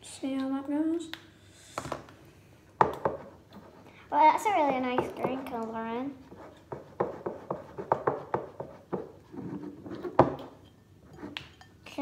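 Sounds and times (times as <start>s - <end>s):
spoon scraping mixing bowl: 4.7s - 11.7s.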